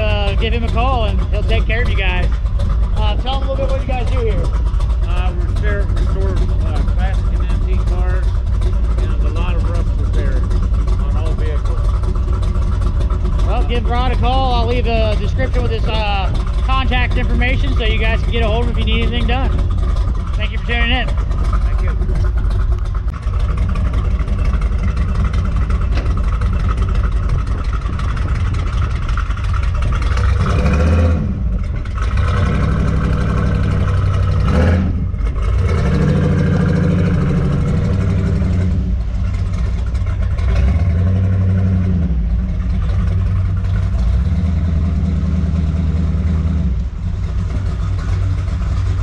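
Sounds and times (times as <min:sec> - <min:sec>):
truck engine revving: 0:00.0 - 0:49.0.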